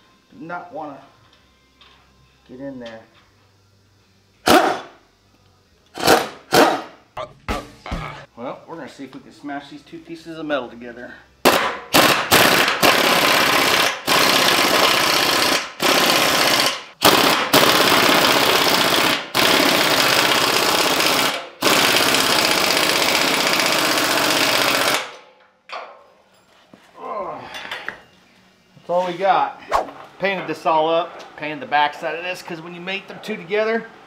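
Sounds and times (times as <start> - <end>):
pneumatic impact wrench hammering: 4.4 - 4.9, 5.9 - 7.0, 11.4 - 25.3.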